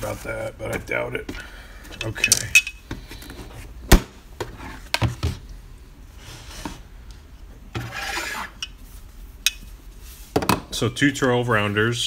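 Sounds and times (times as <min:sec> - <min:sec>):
case scraping on wood: 0:07.8 - 0:08.6.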